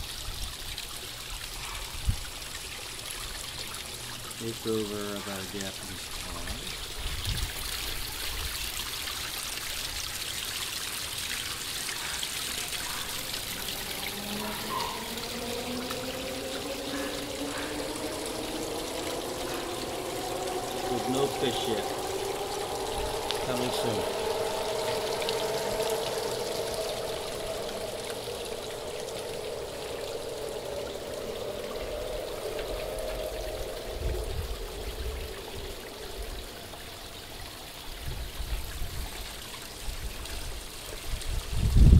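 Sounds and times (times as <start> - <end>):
water trickling and splashing: 0.0 - 41.9
low rumble: 12.5 - 39.0.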